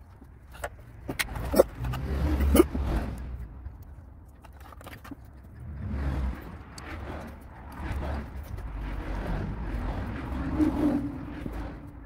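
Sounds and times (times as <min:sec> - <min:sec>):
hand tool clicking and scraping: 0:00.0 - 0:05.8.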